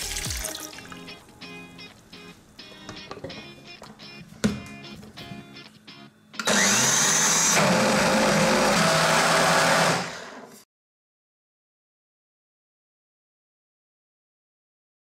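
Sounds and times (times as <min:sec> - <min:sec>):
blender motor whining: 0:06.4 - 0:10.6.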